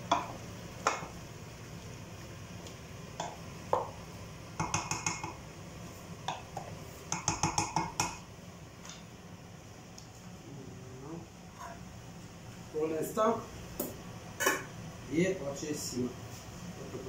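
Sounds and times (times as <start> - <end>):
wooden spoon knocking a pot: 0.0 - 1.1, 3.2 - 4.0, 4.6 - 5.4, 6.3 - 8.2.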